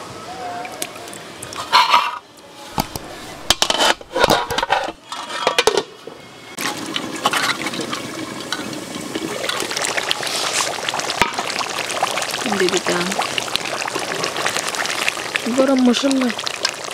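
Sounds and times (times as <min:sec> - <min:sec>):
curry bubbling in a pot: 0:06.7 - 0:16.9.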